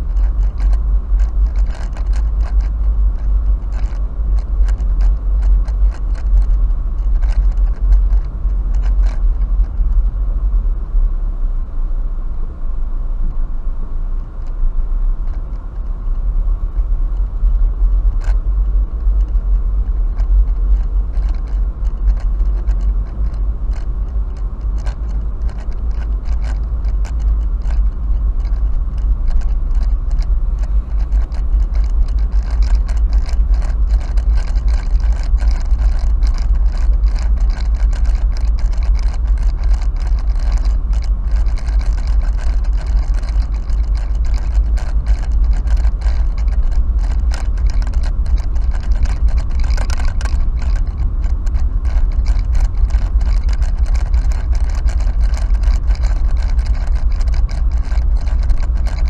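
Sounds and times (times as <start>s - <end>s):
low road rumble: 0.0s - 59.0s
clicks and rattles in car cabin: 19.0s - 59.0s.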